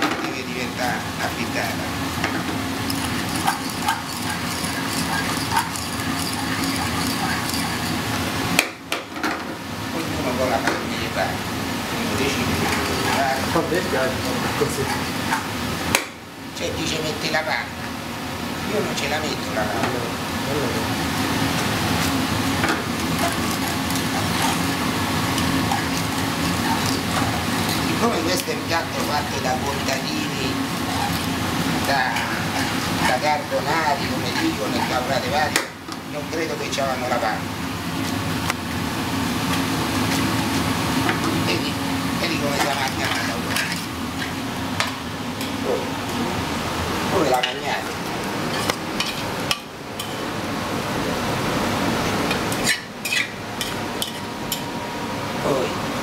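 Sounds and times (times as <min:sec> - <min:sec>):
steady kitchen hum: 0:00.0 - 0:56.0
metal tongs scraping a frying pan: 0:02.8 - 0:08.1, 0:22.9 - 0:35.0, 0:42.4 - 0:44.4, 0:52.5 - 0:54.3.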